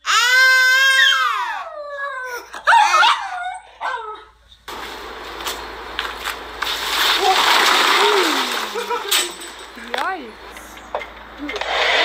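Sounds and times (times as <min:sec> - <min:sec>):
dog howling: 0:00.3 - 0:04.3.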